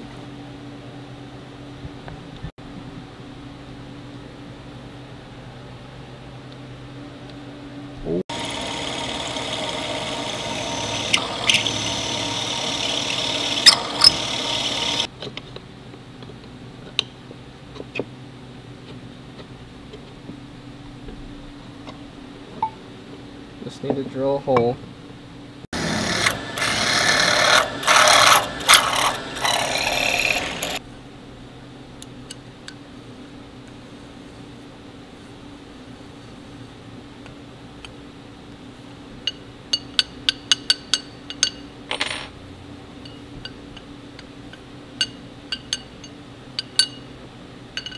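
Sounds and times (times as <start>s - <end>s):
mill drilling into aluminium: 8.3s - 15.1s, 25.8s - 30.8s.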